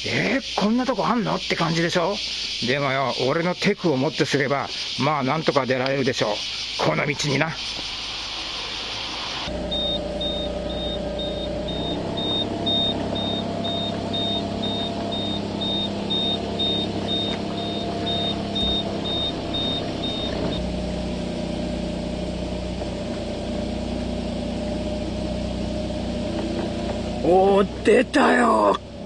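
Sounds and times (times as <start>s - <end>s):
car engine running at low speed: 6.2s - 29.0s
high warning beeps: 9.7s - 20.6s.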